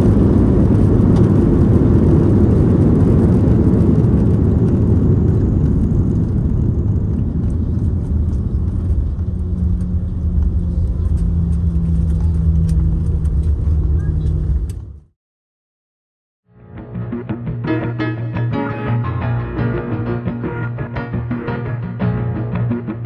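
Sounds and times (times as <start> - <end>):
rumble of engines and rolling wheels: 0.0 - 15.1.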